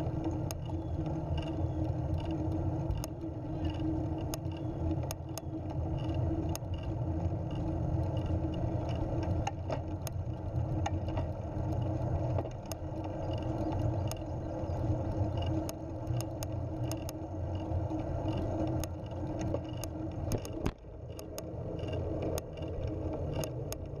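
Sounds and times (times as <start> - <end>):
sharp clicks and rattles: 0.0 - 24.0
trike rolling on rough asphalt: 0.0 - 24.0.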